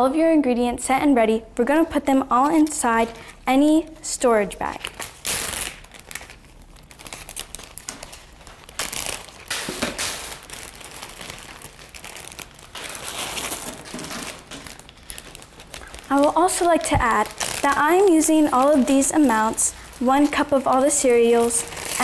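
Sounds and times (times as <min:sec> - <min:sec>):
plastic bags crinkling: 0:04.5 - 0:22.0.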